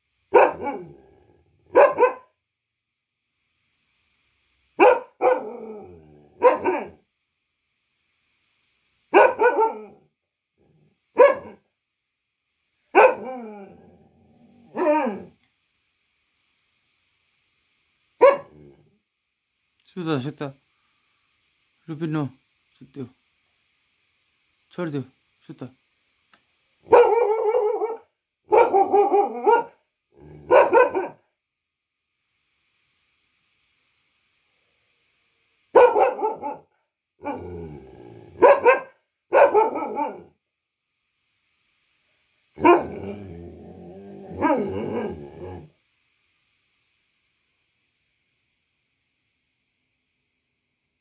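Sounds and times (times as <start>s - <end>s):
dog barking: 0.3s - 1.0s, 1.7s - 2.4s, 4.8s - 5.7s, 6.4s - 7.0s, 9.1s - 10.0s, 11.1s - 11.6s, 12.9s - 13.4s, 14.7s - 15.3s, 18.2s - 18.6s, 26.8s - 29.8s, 30.5s - 31.3s, 35.7s - 37.4s, 38.4s - 40.3s, 42.6s - 43.0s, 44.3s - 45.2s.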